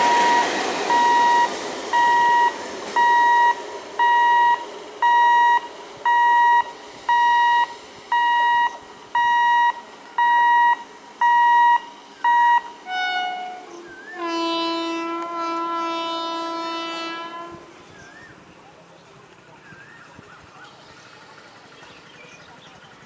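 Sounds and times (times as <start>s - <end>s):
electronic beeper beeping: 0.0s - 12.7s
train horn: 12.4s - 17.8s.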